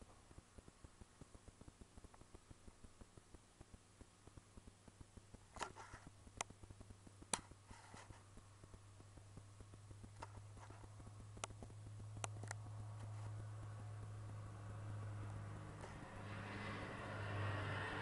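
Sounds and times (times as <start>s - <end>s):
low engine hum: 11.1s - 18.0s
sharp clicks: 11.4s - 13.1s.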